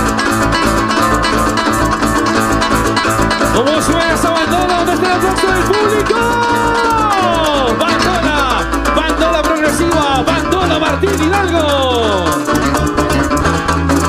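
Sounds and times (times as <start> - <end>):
band rhythm: 0.0 - 14.0
plucked string melody: 0.0 - 14.0
person singing: 3.6 - 12.5.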